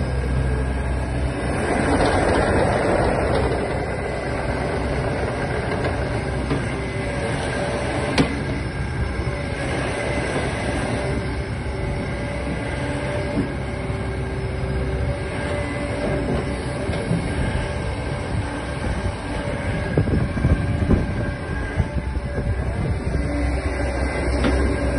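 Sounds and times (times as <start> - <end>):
excavator diesel rumble: 0.0 - 24.9
track clatter and hydraulic whine: 0.0 - 24.9.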